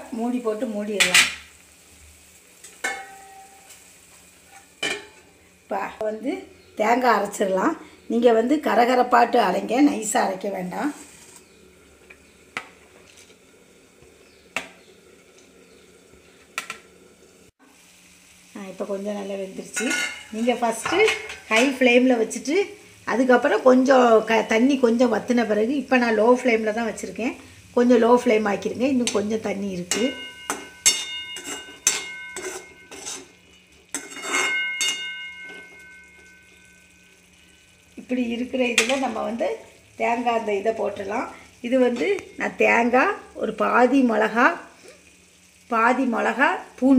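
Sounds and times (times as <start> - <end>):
pan ringing: 2.8 - 3.7, 29.9 - 33.0, 34.3 - 37.5
metal spatula scraping metal pan: 10.8 - 11.6, 19.8 - 21.8, 29.8 - 36.9.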